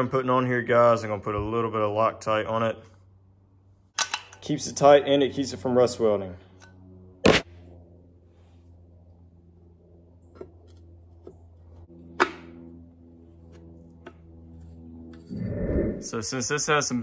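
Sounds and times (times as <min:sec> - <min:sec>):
steady low hum: 0:04.6 - 0:17.0.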